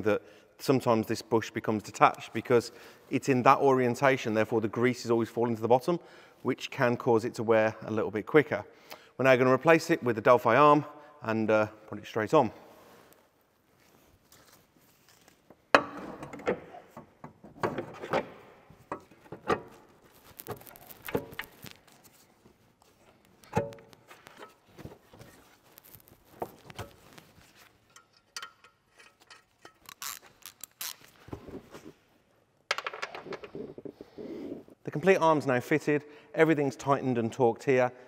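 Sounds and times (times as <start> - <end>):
metal clinks and knocks: 27.8 - 30.0.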